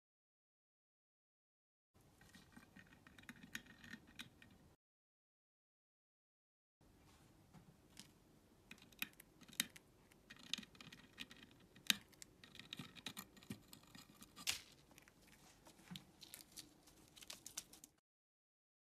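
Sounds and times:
bird pecking and cracking seeds: 0:02.2 - 0:04.6, 0:07.9 - 0:18.0.

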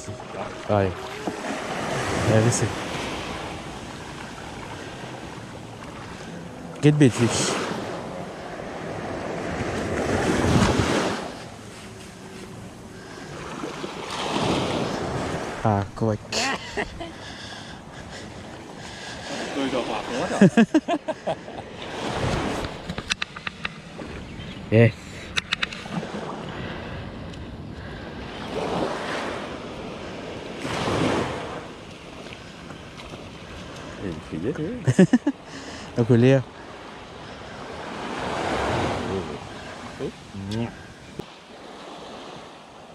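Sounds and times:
small waves lapping on sand: 0:00.0 - 0:24.4, 0:25.0 - 0:42.9
wind on microphone: 0:09.1 - 0:11.6
wind noise on microphone: 0:10.0 - 0:11.2.

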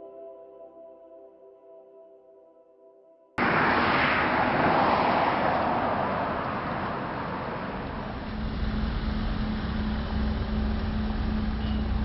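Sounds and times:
vehicle rushing past: 0:03.4 - 0:11.8
low engine hum: 0:03.4 - 0:12.0.

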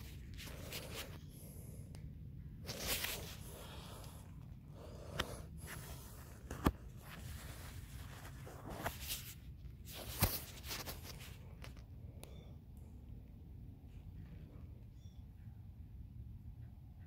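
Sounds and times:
rustling against clothing: 0:00.0 - 0:01.2, 0:02.6 - 0:11.9.

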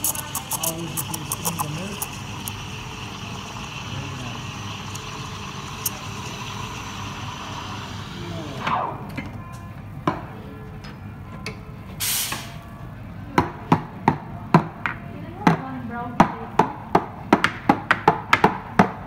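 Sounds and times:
short hiss: 0:12.0 - 0:12.6.

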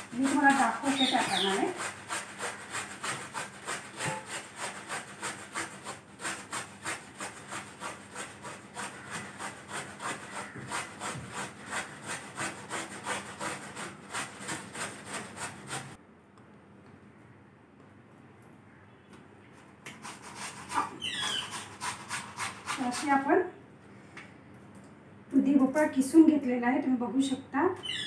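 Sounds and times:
gourd rasping on steel grater: 0:00.0 - 0:16.0, 0:20.0 - 0:23.3.

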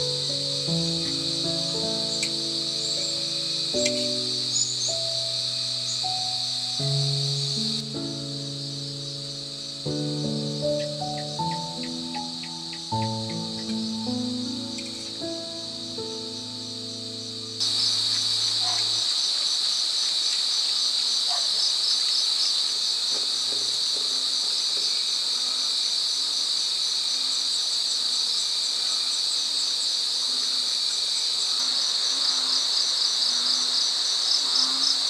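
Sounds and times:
insects trilling: 0:00.0 - 0:35.0
rapid pulsing insect chirps: 0:00.0 - 0:35.0.

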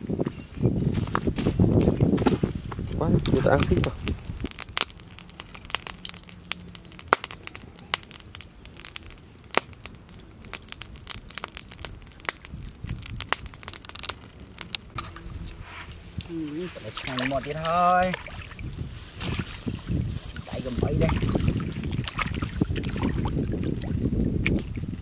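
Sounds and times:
wood fire crackling: 0:00.9 - 0:25.0
sharp pops: 0:02.2 - 0:18.6.

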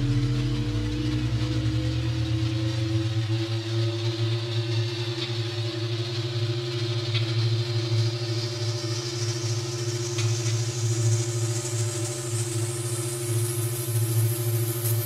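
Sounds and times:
synthesizer drone: 0:00.0 - 0:06.5.

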